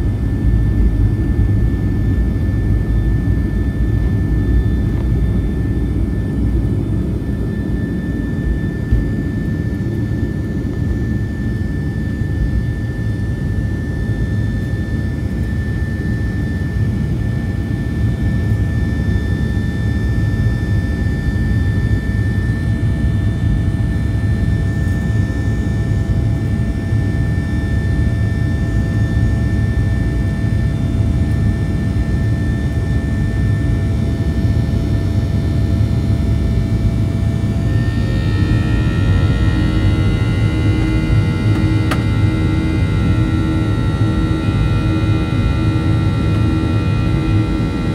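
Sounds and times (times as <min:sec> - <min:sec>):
high fan whine: 0:00.0 - 0:47.9
jet engine rumble: 0:00.0 - 0:47.9.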